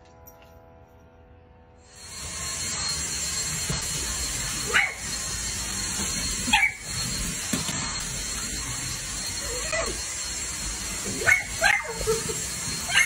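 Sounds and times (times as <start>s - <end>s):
vacuum motor whine and hiss: 1.9s - 13.0s
dog barking: 4.7s - 5.0s, 11.2s - 12.2s.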